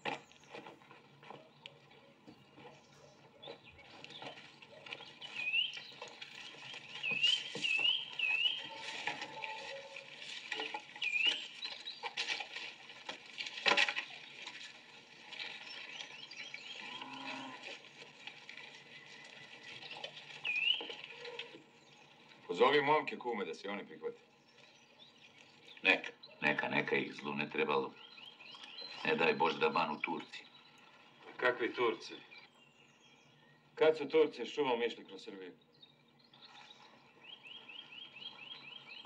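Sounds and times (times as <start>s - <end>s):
bird chirping: 0.0s - 12.2s, 15.4s - 17.5s, 18.9s - 22.1s, 24.2s - 34.1s, 35.5s - 39.0s.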